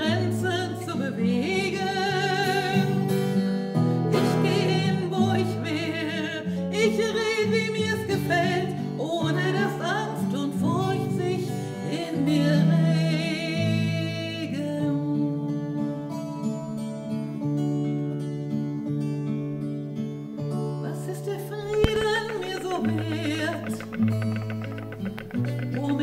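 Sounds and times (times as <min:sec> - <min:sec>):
twelve-string acoustic guitar: 0:00.0 - 0:26.0
woman singing with vibrato: 0:21.6 - 0:26.0.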